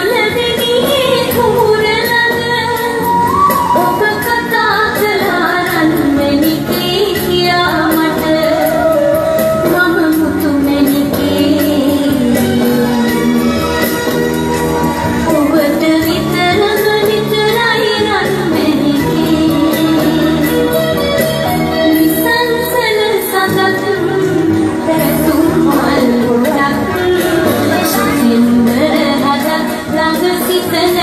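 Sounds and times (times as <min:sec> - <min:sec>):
woman singing: 0:00.0 - 0:14.1, 0:15.2 - 0:20.9, 0:21.7 - 0:31.0
instrumental music with beat: 0:00.4 - 0:22.7.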